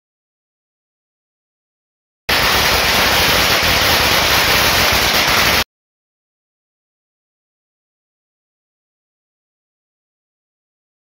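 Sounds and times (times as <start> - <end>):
firecrackers crackling: 2.3 - 5.7.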